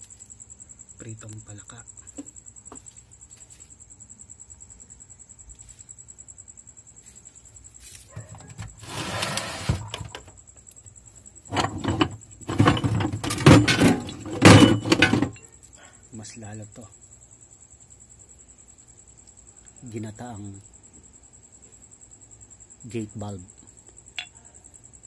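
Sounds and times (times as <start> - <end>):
plastic drawer scraping open: 8.4 - 10.2, 11.5 - 15.4
metal pipe fittings clinking: 11.5 - 15.5.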